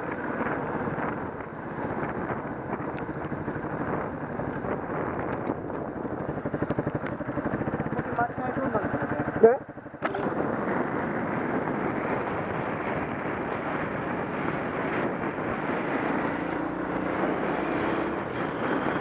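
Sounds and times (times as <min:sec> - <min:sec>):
motorcycle engine cruising: 0:00.0 - 0:19.0
wind on microphone: 0:00.0 - 0:19.0.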